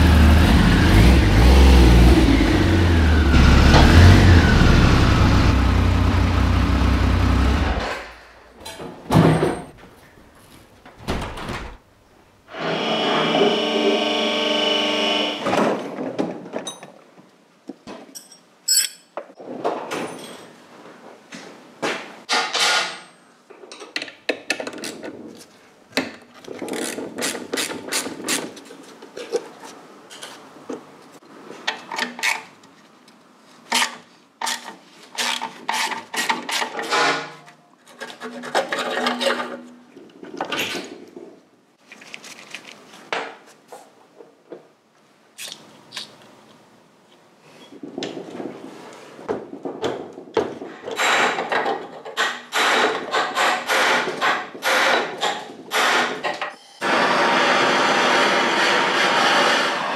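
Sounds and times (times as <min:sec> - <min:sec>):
metal clinks and knocks: 0:18.0 - 0:19.3.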